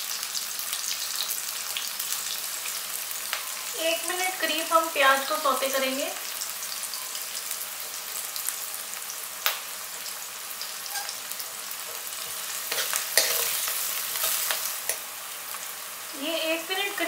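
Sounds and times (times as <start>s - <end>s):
onion sizzling in hot oil: 0.0s - 17.0s
steel ladle stirring: 12.3s - 15.0s.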